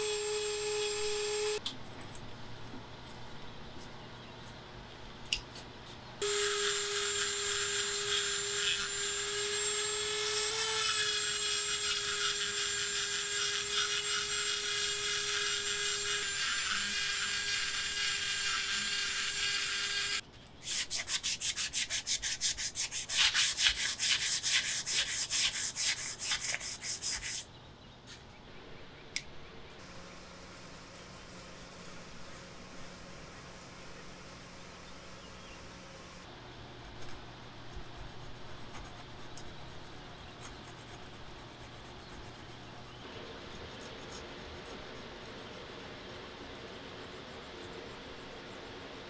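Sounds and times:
hand sanding strokes: 13.3 - 27.5.

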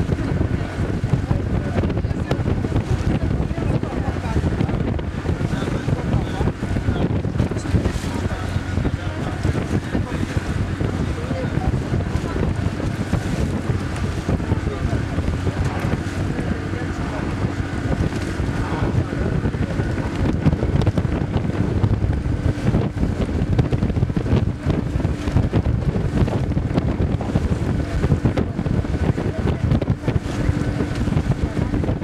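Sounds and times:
boat motor humming: 0.0 - 32.0
wind buffeting microphone: 0.0 - 32.0.

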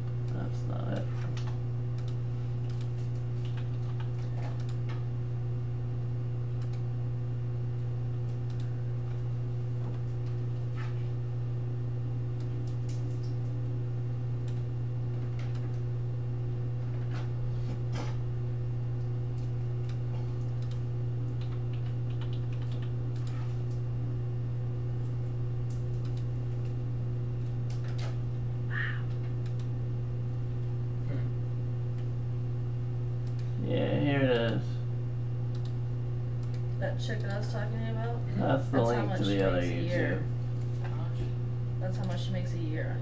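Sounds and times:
steady low hum: 0.0 - 43.0
keyboard typing clicks: 1.4 - 5.0, 6.6 - 6.9, 8.2 - 8.7, 15.4 - 15.8, 19.4 - 23.8, 25.7 - 26.8, 27.6 - 28.1, 33.2 - 33.5, 35.5 - 35.8, 36.4 - 37.4.

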